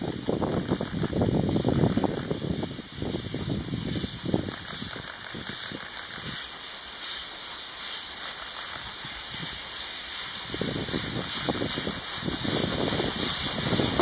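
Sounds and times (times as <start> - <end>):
steam hiss: 0.0 - 14.0
steam locomotive chuffing: 0.0 - 14.0.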